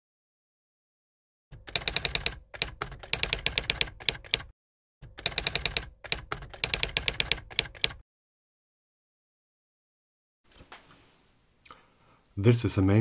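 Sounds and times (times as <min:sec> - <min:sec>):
typewriter keys clacking: 0:01.6 - 0:08.0.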